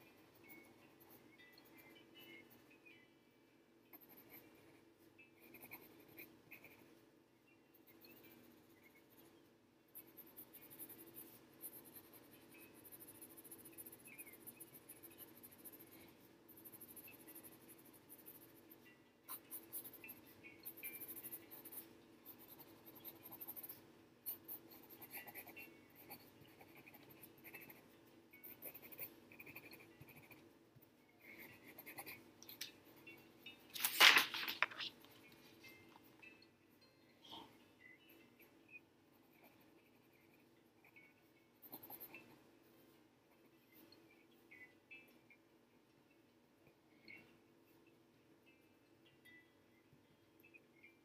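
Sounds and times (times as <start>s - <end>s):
faint steady hum: 0.0s - 51.0s
pencil scratching on paper: 3.9s - 7.0s, 7.7s - 30.5s, 31.2s - 33.1s, 39.1s - 42.3s.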